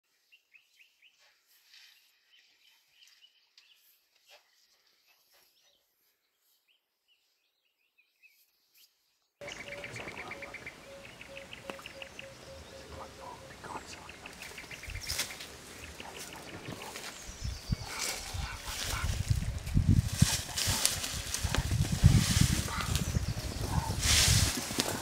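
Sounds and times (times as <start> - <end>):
birds calling: 8.2 - 25.0.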